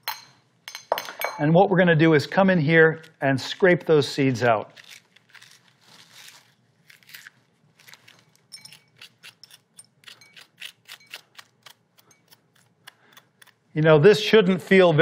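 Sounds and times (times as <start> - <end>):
metal spoon scraping squash: 3.0 - 13.8.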